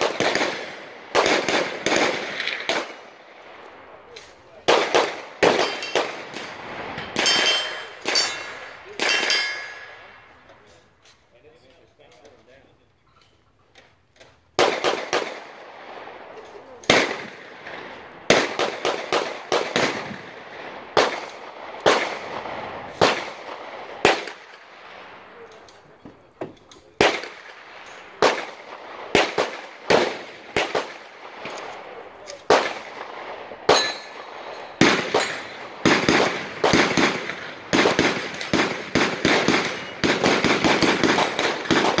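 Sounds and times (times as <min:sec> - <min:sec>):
rapid strings of gunshots: 0:00.0 - 0:03.0, 0:27.0 - 0:42.0
gunshots with echo: 0:00.0 - 0:03.1, 0:04.6 - 0:10.3, 0:16.9 - 0:25.4, 0:27.0 - 0:42.0.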